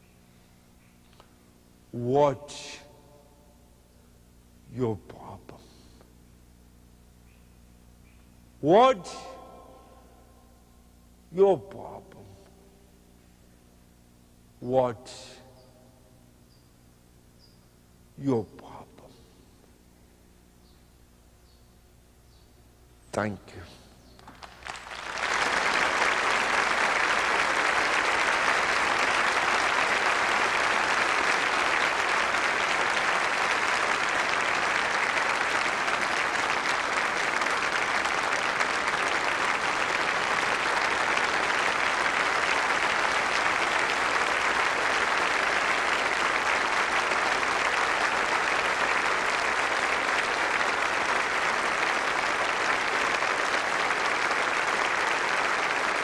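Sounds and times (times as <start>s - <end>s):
audience applauding: 24.2s - 56.0s.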